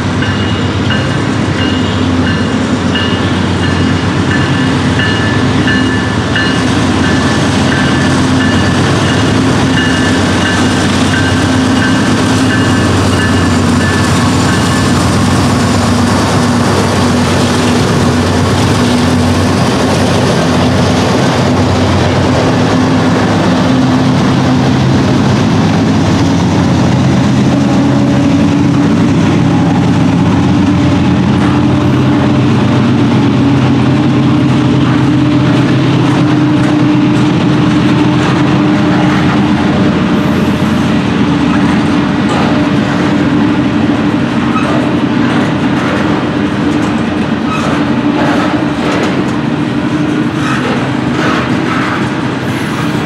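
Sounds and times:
diesel locomotive passing: 0.0 - 53.0
train wheels rumbling on rails: 0.0 - 53.0
wheels clicking over rail joints: 44.4 - 52.3.

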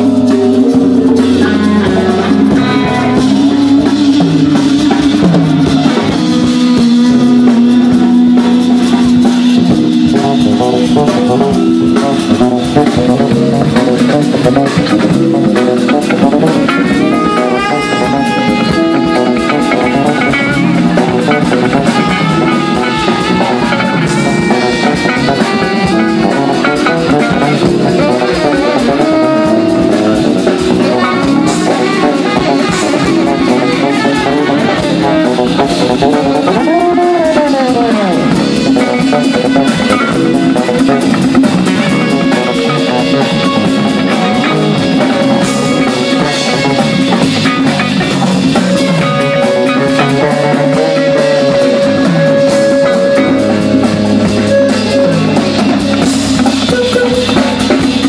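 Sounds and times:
drum kit: 0.0 - 58.0
electric guitar: 0.0 - 58.0
live rock band playing: 0.0 - 58.0.

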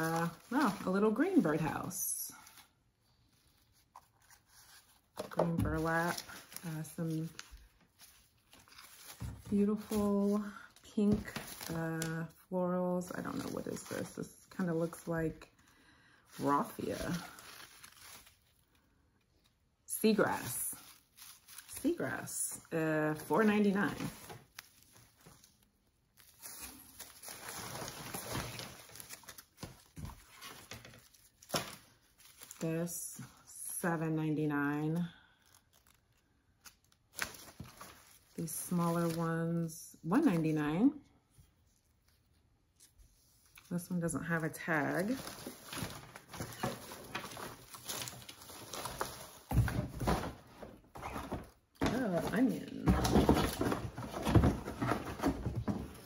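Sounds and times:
packaging rustling and knocking: 4.6 - 10.4, 45.1 - 56.0.

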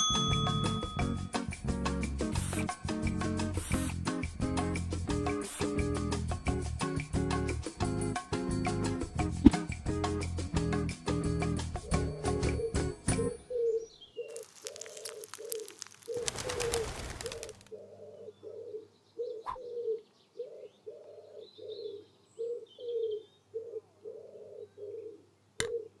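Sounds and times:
doves cooing: 11.8 - 26.0
bird seed pouring: 14.3 - 17.7.

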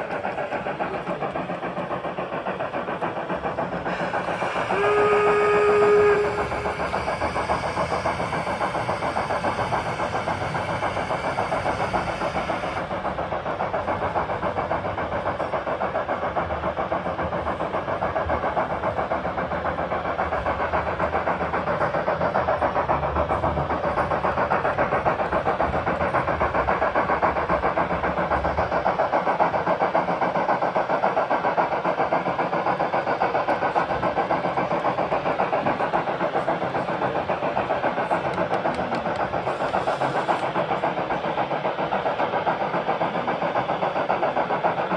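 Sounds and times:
high steam hiss: 0.0 - 13.2, 27.8 - 44.9
steam locomotive chuffing: 0.0 - 44.9
locomotive whistle: 4.3 - 12.8.

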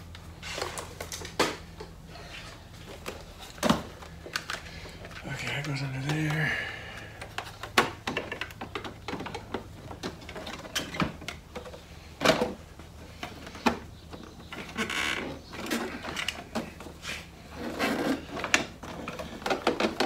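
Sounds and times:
clicks and knocks of parts: 2.9 - 17.0, 17.7 - 20.0.

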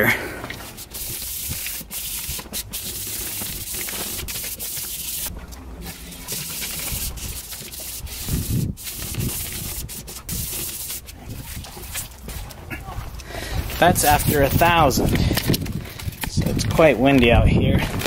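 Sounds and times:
wet sandpaper rubbing on metal: 0.6 - 12.6.

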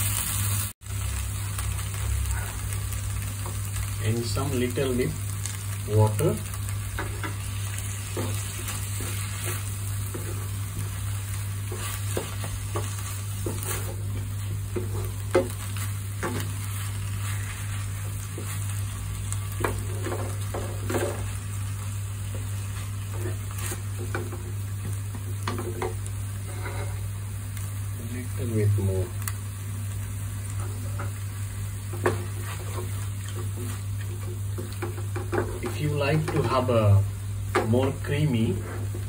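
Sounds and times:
food sizzling in a pan: 0.0 - 39.0
spatula scraping and knocking pan: 6.9 - 18.8, 19.5 - 21.4, 22.2 - 27.0, 31.8 - 36.7.

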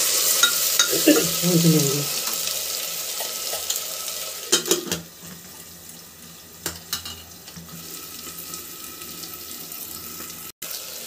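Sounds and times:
potatoes frying in oil: 0.0 - 11.0.

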